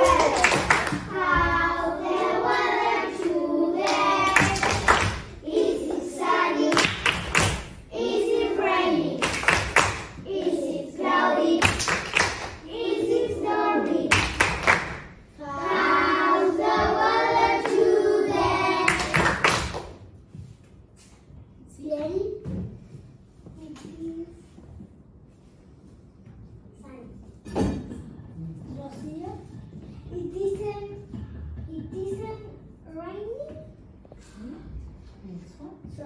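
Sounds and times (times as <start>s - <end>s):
hand claps: 0.0s - 1.1s, 3.2s - 6.1s, 6.7s - 7.8s, 9.2s - 10.2s, 11.6s - 12.6s, 14.1s - 15.1s, 18.8s - 20.0s
children singing: 0.0s - 7.1s, 12.7s - 14.6s, 15.4s - 19.4s.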